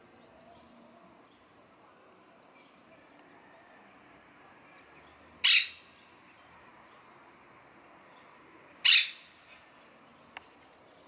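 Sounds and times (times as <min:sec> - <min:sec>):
parakeet squawking harshly: 0:05.4 - 0:05.9, 0:08.8 - 0:09.4.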